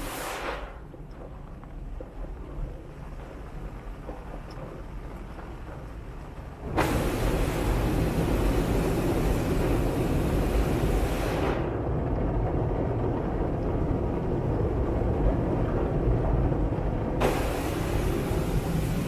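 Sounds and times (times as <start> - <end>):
car wash machine rumble: 0.0 - 19.0
water spraying on windshield: 6.7 - 11.6, 17.2 - 19.0.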